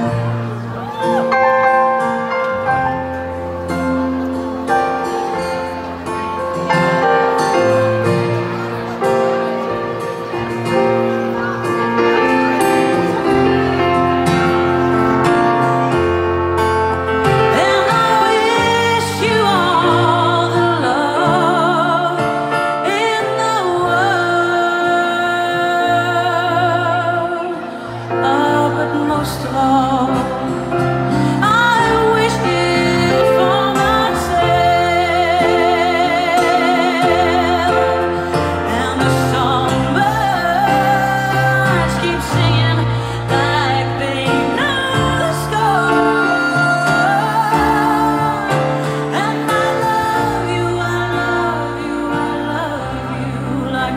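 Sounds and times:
woman singing with vibrato: 17.3 - 53.9.

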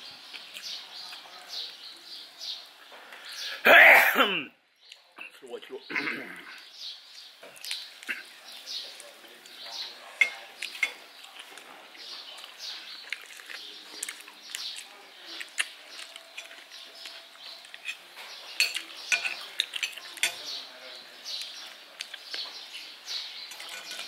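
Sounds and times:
chewing and mouth smacks: 7.5 - 8.3, 10.6 - 20.4, 21.4 - 22.6
cutlery clicking on plates: 9.7 - 11.6, 16.0 - 20.6, 23.5 - 24.0.

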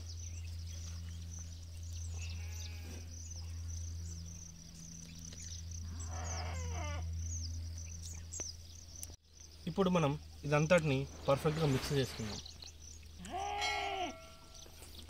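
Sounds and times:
steady low hum: 0.0 - 13.3
livestock bleating: 2.1 - 3.1, 13.2 - 14.6.

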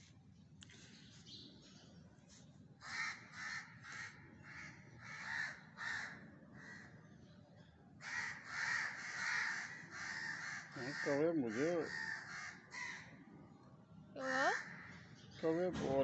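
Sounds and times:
crows cawing: 2.8 - 7.1, 8.0 - 13.3, 14.2 - 15.2.

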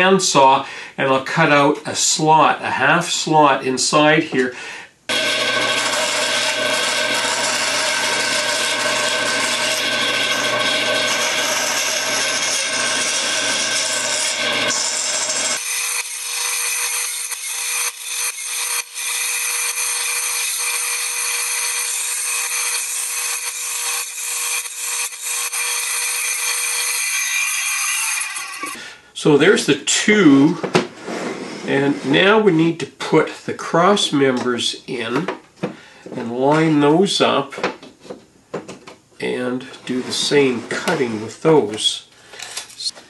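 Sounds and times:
bandsaw cutting wood: 5.1 - 28.8.

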